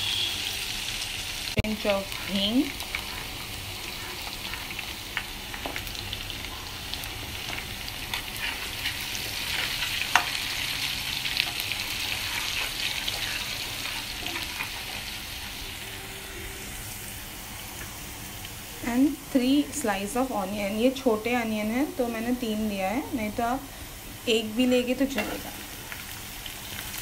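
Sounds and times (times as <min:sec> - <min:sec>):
food sizzling in hot oil: 0:00.0 - 0:27.0
steel spatula stirring: 0:07.4 - 0:16.9.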